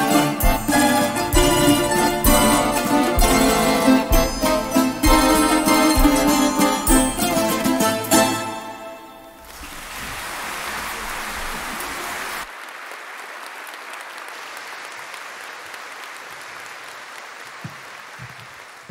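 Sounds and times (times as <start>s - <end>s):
audience applauding: 9.4s - 18.9s.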